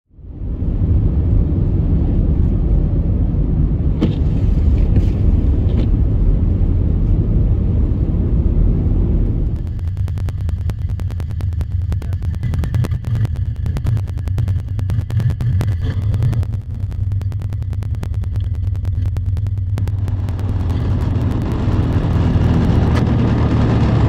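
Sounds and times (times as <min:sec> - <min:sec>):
vehicle road rumble: 0:00.1 - 0:24.0
clicks: 0:09.4 - 0:23.2
electronic music with quick beat: 0:09.5 - 0:23.3.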